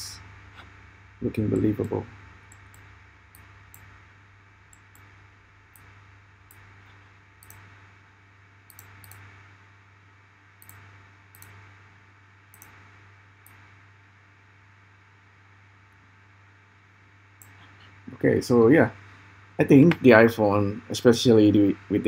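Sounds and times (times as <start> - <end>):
low hum and hiss: 0.0 - 22.0
computer mouse clicks: 6.5 - 7.7, 8.7 - 9.3, 10.6 - 11.6, 12.5 - 12.8.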